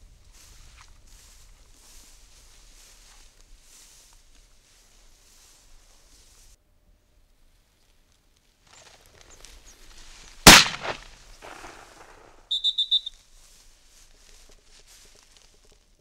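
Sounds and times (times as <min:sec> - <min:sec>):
rustling: 0:07.5 - 0:16.0
shotgun shot: 0:10.5 - 0:12.3
high-pitched chirps: 0:12.5 - 0:13.1.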